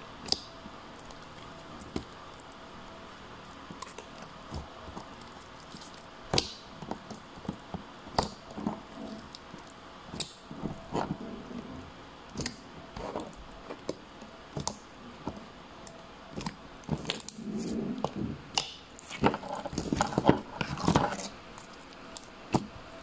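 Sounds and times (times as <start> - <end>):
slime squishing and popping: 3.5 - 11.1.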